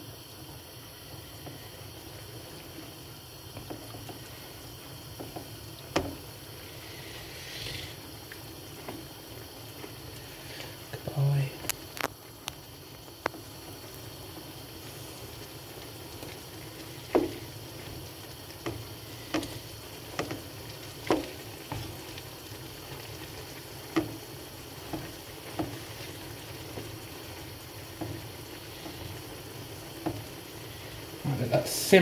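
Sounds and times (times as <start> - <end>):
pan sizzling: 0.0 - 32.0
wooden spatula knocking pan: 5.2 - 6.2, 17.0 - 17.5, 18.6 - 22.0, 24.8 - 26.9.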